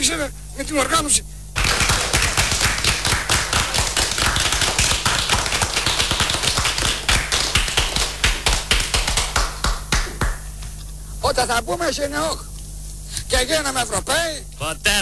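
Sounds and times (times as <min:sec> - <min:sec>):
men clapping: 0:01.6 - 0:10.8.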